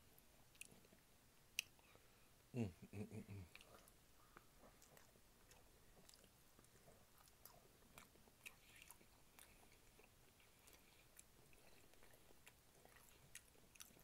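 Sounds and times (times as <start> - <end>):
person chewing meat: 3.5 - 14.0.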